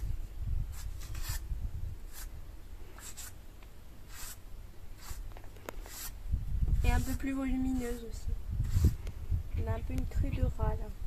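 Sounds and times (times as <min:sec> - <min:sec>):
brush swishing through hair: 0:00.7 - 0:01.4, 0:03.0 - 0:03.4, 0:04.1 - 0:04.4, 0:05.0 - 0:05.2, 0:05.8 - 0:09.0.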